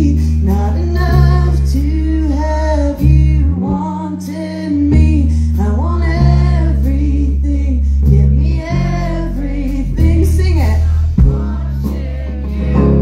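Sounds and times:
electric guitar: 0:00.0 - 0:13.0
low bass notes: 0:00.0 - 0:13.0
woman singing: 0:00.0 - 0:13.0.

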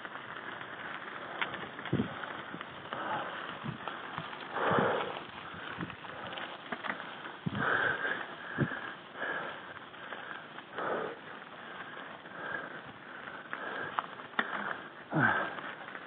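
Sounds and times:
tyres crunching on gravel: 0:00.0 - 0:16.0
person breathing hard: 0:02.9 - 0:06.5, 0:07.4 - 0:15.8.

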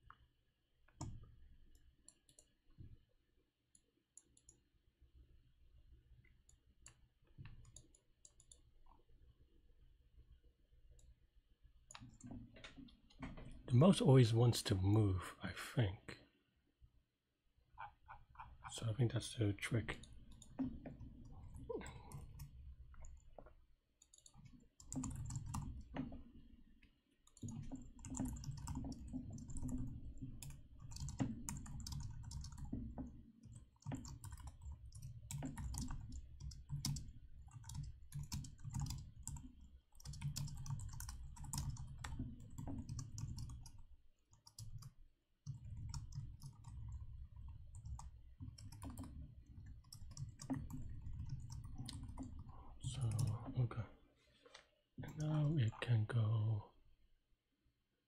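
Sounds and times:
computer keyboard typing: 0:06.5 - 0:08.7, 0:19.9 - 0:23.4, 0:24.0 - 0:26.5, 0:27.2 - 0:53.5.

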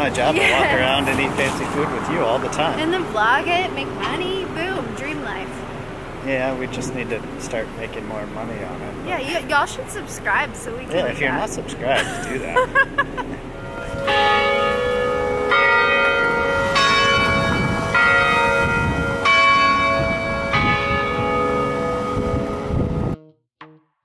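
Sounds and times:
tower bells chiming: 0:13.5 - 0:22.8
plucked-string music: 0:22.4 - 0:23.8.

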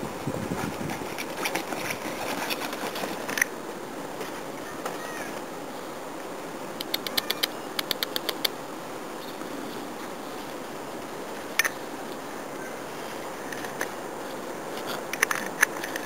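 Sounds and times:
steady background noise: 0:00.0 - 0:16.0
puppy claws clicking and scratching: 0:06.8 - 0:08.5.

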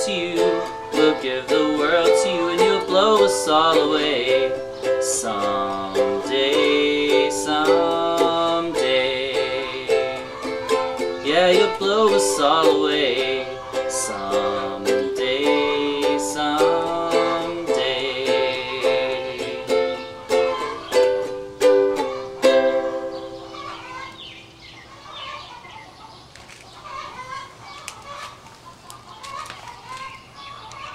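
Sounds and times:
ukulele strumming chords: 0:00.0 - 0:23.8
chickens clucking: 0:00.0 - 0:30.9.

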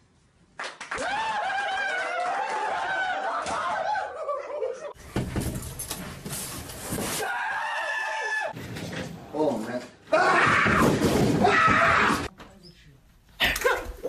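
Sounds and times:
clattering and rustling: 0:05.0 - 0:07.2.

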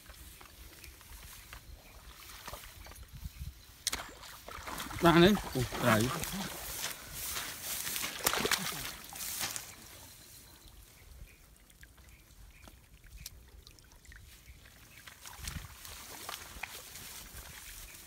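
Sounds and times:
water dripping and trickling: 0:00.0 - 0:18.0
water splashing: 0:03.9 - 0:10.0, 0:11.6 - 0:18.0.

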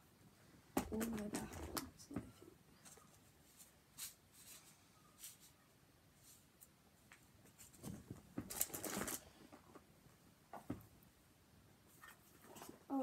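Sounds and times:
packaging rustling and crinkling: 0:07.5 - 0:09.4.

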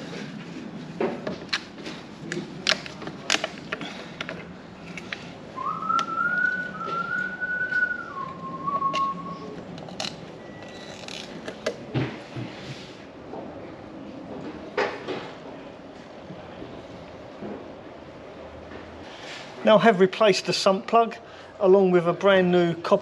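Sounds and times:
clicks of things being handled: 0:01.0 - 0:05.3, 0:08.8 - 0:11.8
person whistling: 0:05.6 - 0:09.6.

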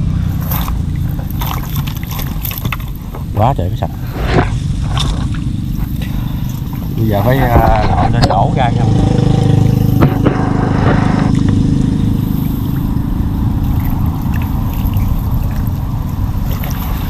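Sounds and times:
water trickling and splashing: 0:00.0 - 0:07.1, 0:11.5 - 0:17.0
low rumble: 0:00.0 - 0:17.0
sharp knocks: 0:10.0 - 0:11.6.

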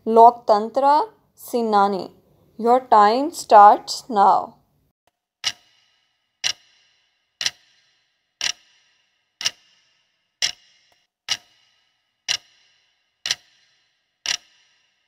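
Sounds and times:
clock ticking: 0:05.4 - 0:15.0.

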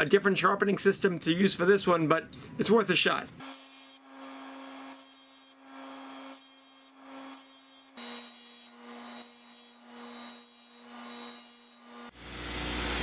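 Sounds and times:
bench grinder motor hum: 0:03.4 - 0:13.0.

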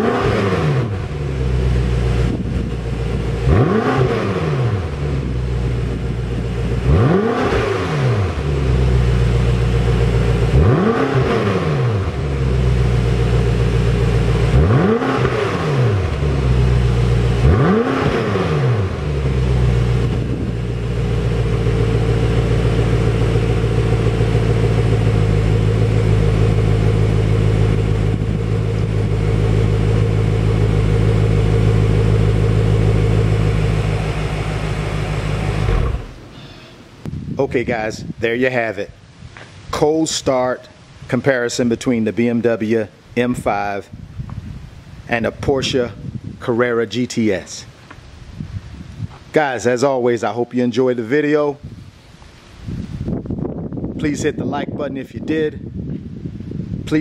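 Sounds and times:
car engine revving and idling: 0:00.0 - 0:37.1.

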